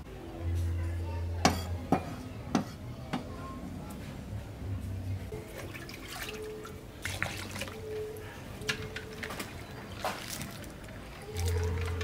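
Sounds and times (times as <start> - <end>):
water sloshing and splashing: 5.3 - 12.0.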